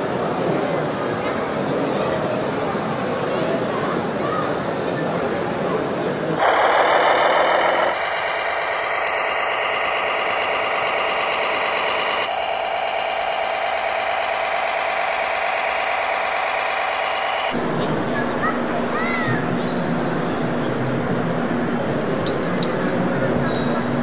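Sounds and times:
model tractor engine running: 6.4s - 17.6s.

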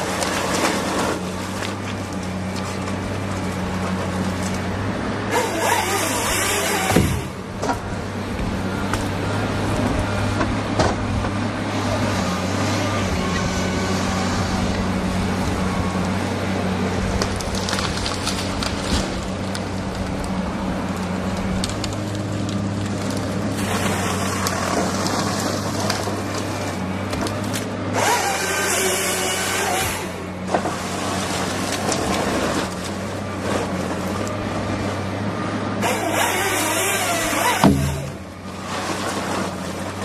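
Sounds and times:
diesel excavator engine running: 0.0s - 40.0s
harsh rasping of wood cutting: 5.3s - 7.4s, 28.0s - 30.2s, 35.8s - 38.4s.

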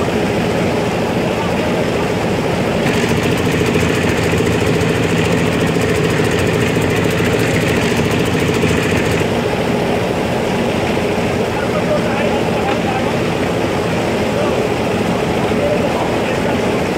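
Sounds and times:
excavator diesel engine running: 0.0s - 16.9s.

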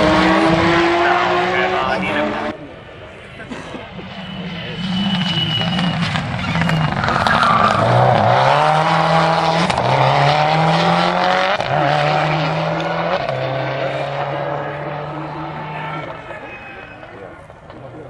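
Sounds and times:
rally car engine accelerating past: 4.8s - 16.2s.

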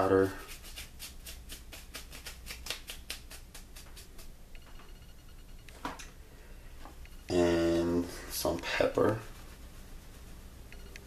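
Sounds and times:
fingers rubbing powder rustle: 0.0s - 4.3s, 7.9s - 11.0s.

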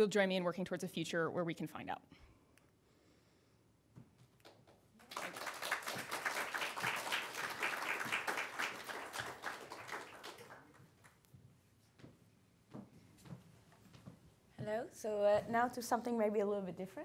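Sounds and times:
audience applauding: 5.0s - 11.2s.

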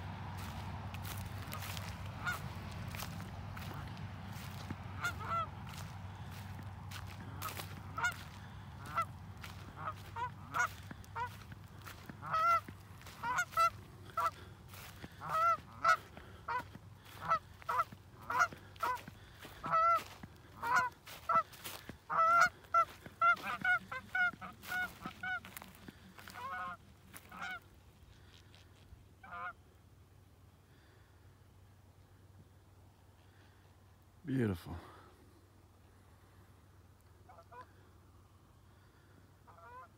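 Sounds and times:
geese honking: 0.0s - 28.4s, 29.2s - 29.6s, 37.2s - 37.9s, 38.7s - 39.9s.

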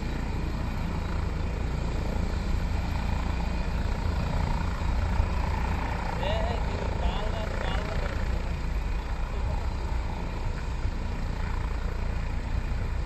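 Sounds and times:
helicopter rotor and turbine: 0.0s - 13.0s.

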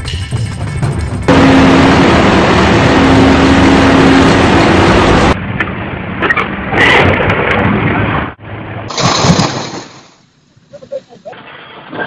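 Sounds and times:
excavator machinery noise: 1.0s - 5.4s.

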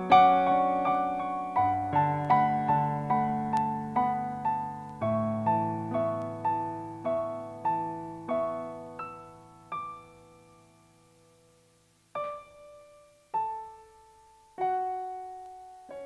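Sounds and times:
electronic piano arpeggios: 0.0s - 10.9s.

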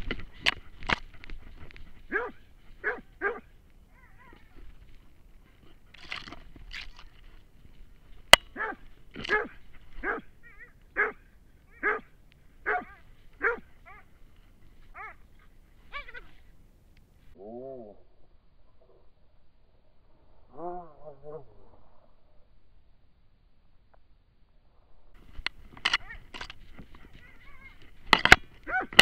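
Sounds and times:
dog barking: 2.1s - 4.5s, 8.5s - 14.1s, 14.9s - 15.2s, 28.7s - 29.0s.

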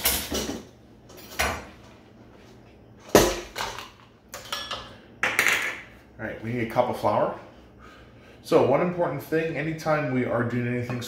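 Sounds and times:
kitchenware knocking and clattering: 3.1s - 5.9s.

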